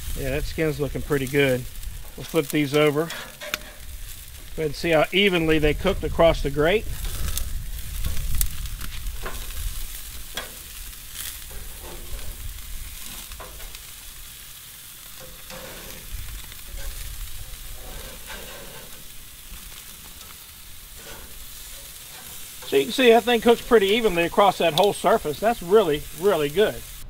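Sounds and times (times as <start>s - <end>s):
chicken sizzling on grill: 0.0s - 27.0s
metal tongs clicking on grates: 10.3s - 10.6s, 21.0s - 26.7s.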